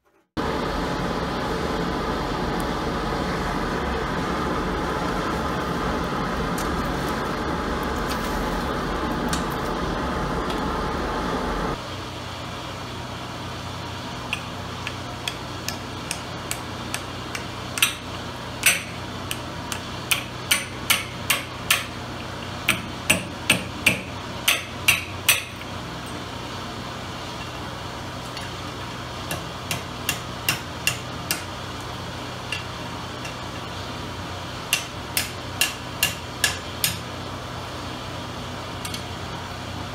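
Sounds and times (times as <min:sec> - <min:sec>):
forge fire roaring: 0:00.4 - 0:20.1
hammer striking hot metal: 0:14.3 - 0:26.2, 0:28.3 - 0:31.6, 0:34.6 - 0:37.1.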